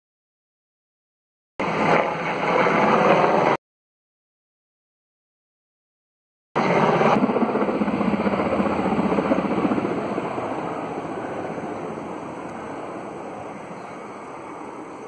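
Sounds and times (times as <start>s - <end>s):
helicopter passing: 1.6s - 3.6s, 6.6s - 15.0s.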